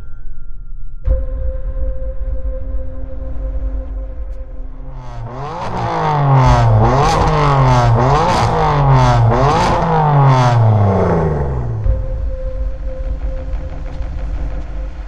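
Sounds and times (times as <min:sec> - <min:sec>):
car engine revving: 0:03.8 - 0:15.0.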